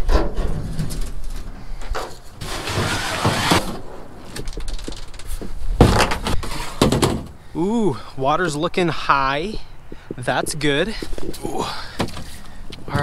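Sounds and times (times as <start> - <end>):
plastic kayak scraping: 2.4 - 3.8, 5.9 - 7.0.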